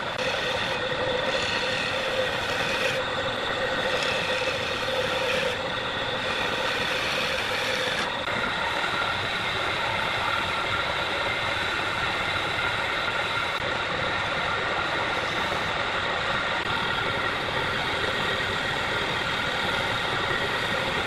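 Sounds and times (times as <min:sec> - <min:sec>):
sandpaper rubbing spinning wood: 0:00.0 - 0:08.2
turning tool cutting wood: 0:00.0 - 0:08.3, 0:15.0 - 0:15.8
wood lathe running: 0:00.0 - 0:10.3, 0:14.8 - 0:15.8.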